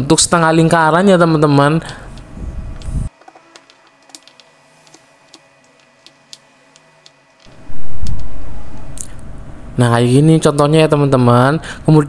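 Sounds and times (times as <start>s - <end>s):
sudden loud low noise: 7.5s - 10.3s.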